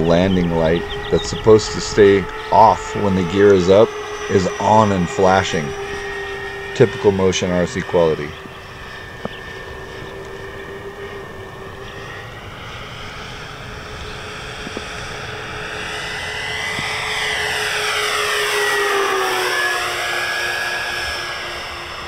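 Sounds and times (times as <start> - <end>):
model plane motors whining: 0.0 - 22.0.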